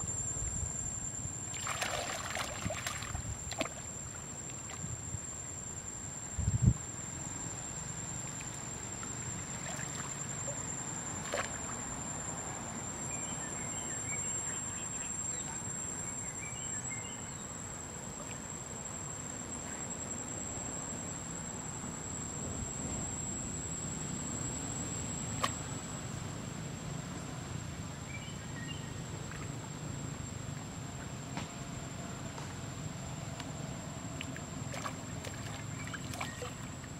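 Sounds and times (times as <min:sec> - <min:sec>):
high-pitched insect drone: 0:00.0 - 0:26.8
faint chirps: 0:13.0 - 0:17.6.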